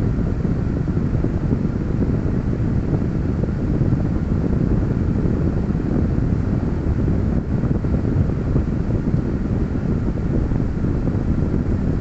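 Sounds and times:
steady low rumbling noise: 0.0 - 12.0.

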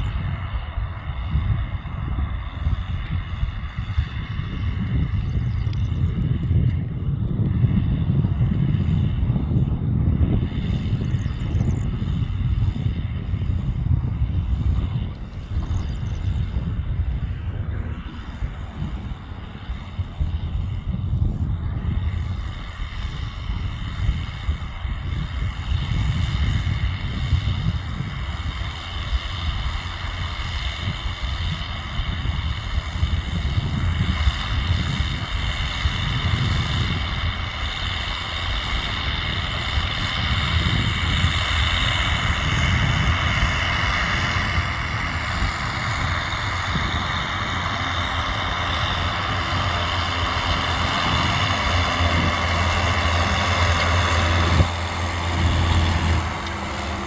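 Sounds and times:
tractor diesel engine running: 0.0 - 57.0
high whine: 30.8 - 57.0.

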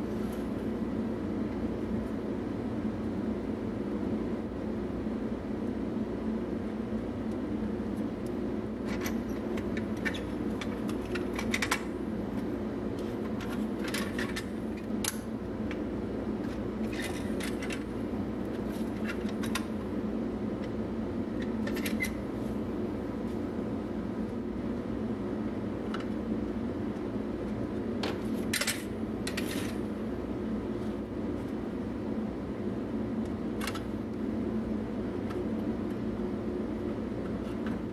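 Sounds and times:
steady hum: 0.0 - 37.9
metallic clicks and scraping: 16.5 - 17.9.

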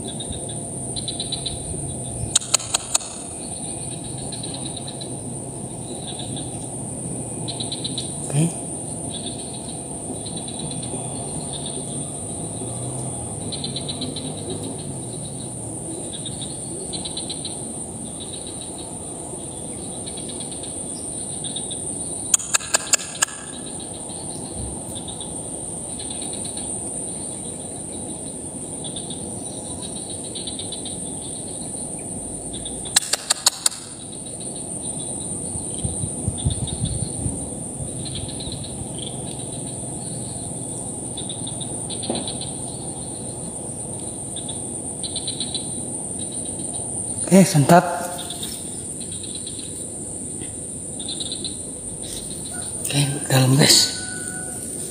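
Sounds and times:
insect chorus chirping: 0.0 - 54.9
quick sharp clicks: 2.3 - 3.3, 22.4 - 23.6, 32.9 - 33.9.

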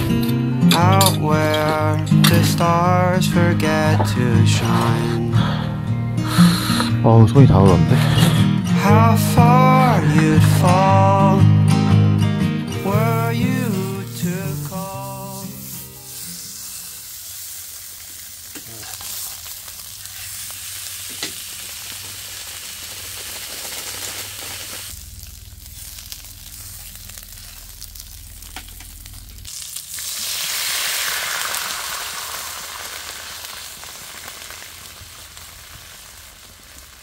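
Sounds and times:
pork sizzling in a wok: 13.1 - 37.0.

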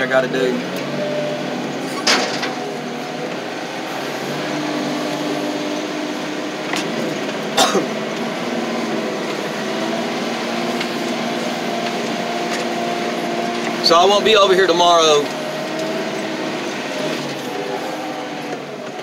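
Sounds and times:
loader engine running: 0.0 - 19.0
sharp clunk: 2.0 - 2.6.

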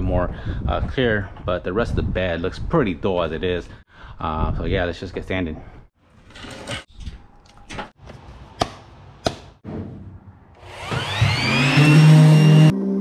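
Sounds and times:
electric sander whining: 10.6 - 13.0.

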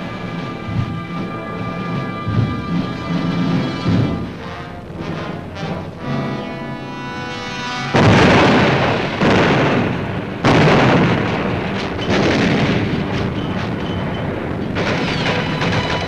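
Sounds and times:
artillery shell explosions: 7.9 - 16.0.

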